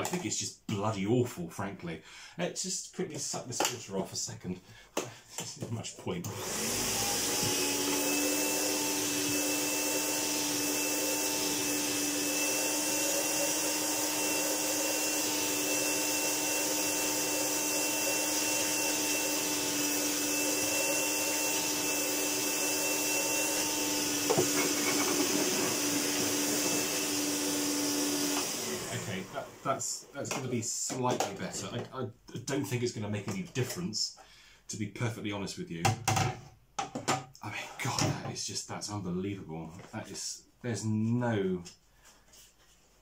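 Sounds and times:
vacuum cleaner whining: 6.2 - 30.5.

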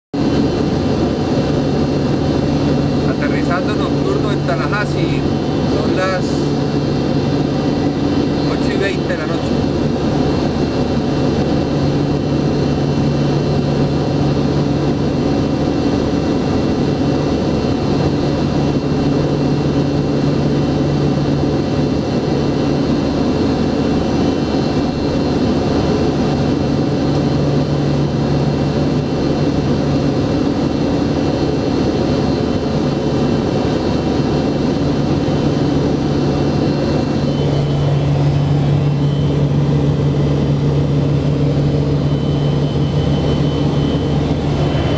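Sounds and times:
aircraft engine and propeller drone: 0.1 - 44.9
low hum: 34.4 - 44.9.

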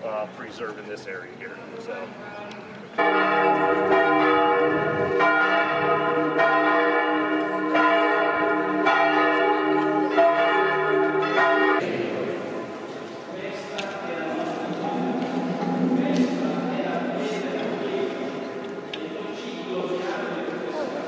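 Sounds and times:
church bells ringing: 3.0 - 12.8, 14.4 - 18.7.

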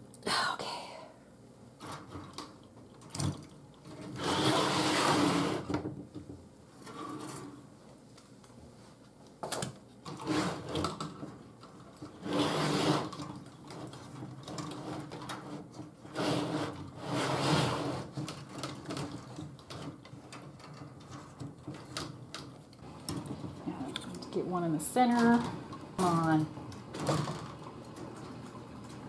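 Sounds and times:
wire mesh rattling and scraping: 11.9 - 22.5.

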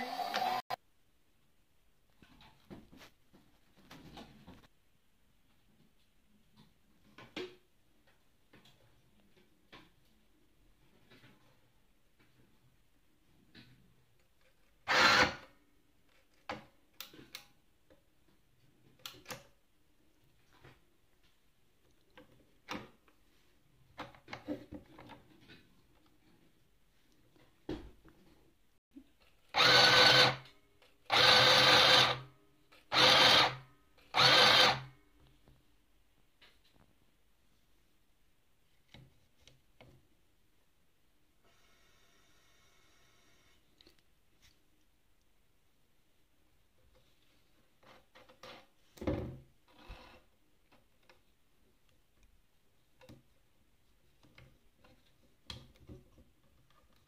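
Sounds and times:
sewing machine stitching: 29.5 - 30.5, 31.1 - 32.2, 32.9 - 34.9.

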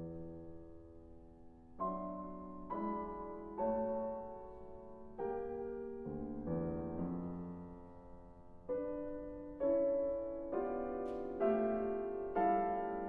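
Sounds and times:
grand piano chords: 0.0 - 13.0.

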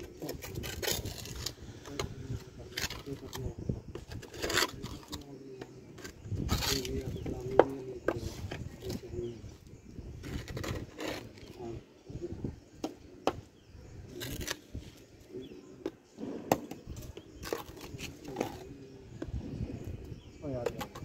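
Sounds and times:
trowel scraping soil in a pot: 0.0 - 7.3, 10.2 - 11.8, 14.0 - 15.1.

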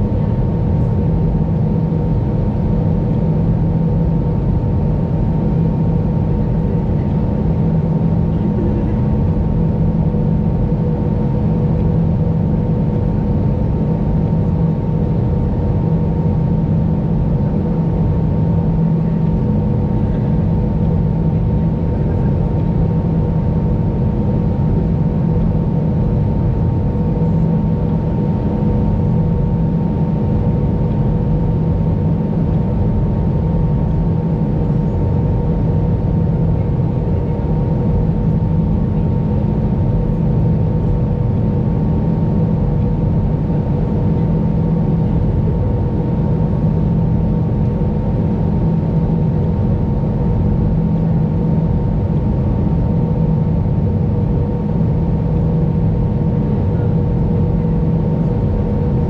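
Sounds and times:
airliner cabin engine rumble: 0.0 - 59.0.

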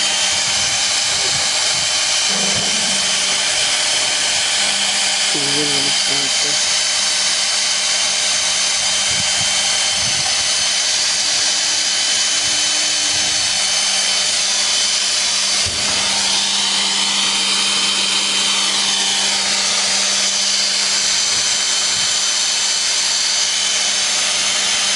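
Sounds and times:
cordless drill running: 0.0 - 24.9.

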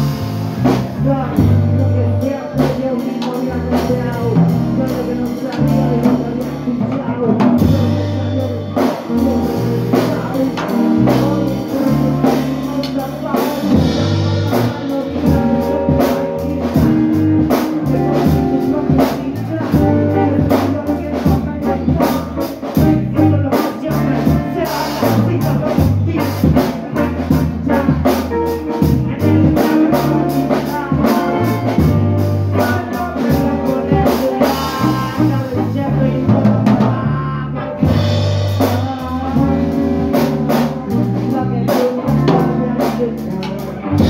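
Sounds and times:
drum kit with cymbals: 0.0 - 44.0
heavy electric guitar: 0.0 - 44.0.

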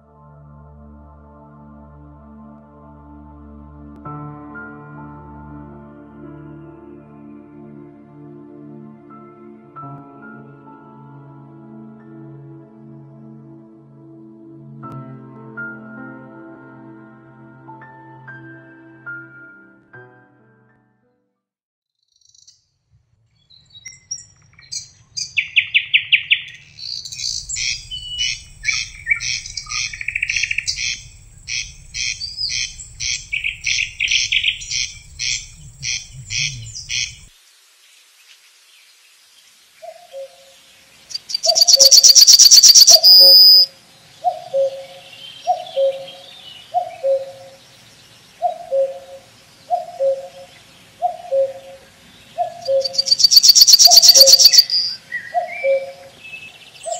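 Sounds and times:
songbirds singing: 23.5 - 37.3, 39.8 - 56.9
cuckoo calling: 27.1 - 37.3, 41.1 - 47.6, 48.4 - 51.8, 52.4 - 56.1
low hum: 27.4 - 37.3.

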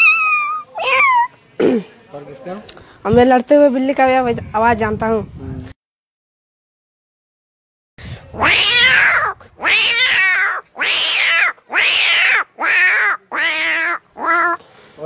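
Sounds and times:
boy imitating cat yowls: 0.0 - 1.3, 8.3 - 14.6.

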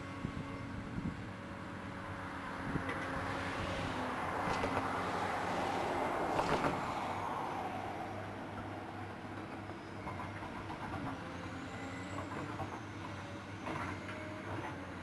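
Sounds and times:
excavator diesel engine running: 7.4 - 15.0.

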